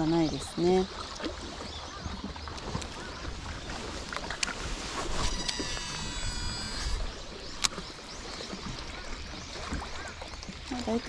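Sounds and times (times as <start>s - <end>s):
fishing reel spool whirring: 5.2s - 7.8s.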